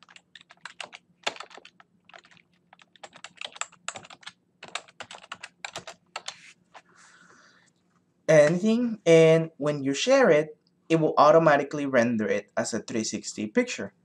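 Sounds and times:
typing on a keyboard: 0:00.0 - 0:06.4.

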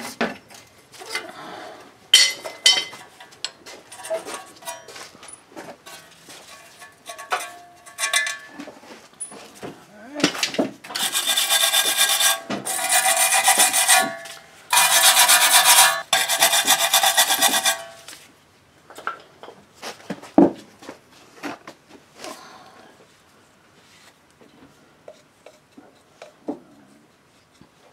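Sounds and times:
scrubbing metal wheel hub: 0:10.9 - 0:18.1.

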